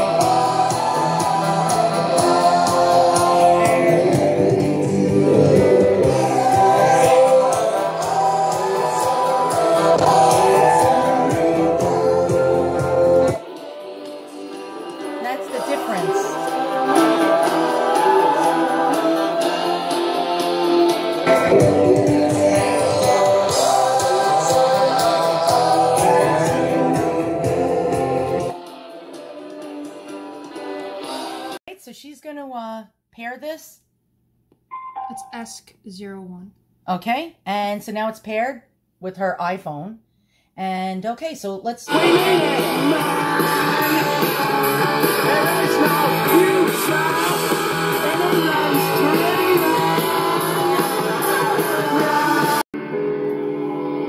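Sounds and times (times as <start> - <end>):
rock song with singing: 0.0 - 31.6, 41.9 - 52.6.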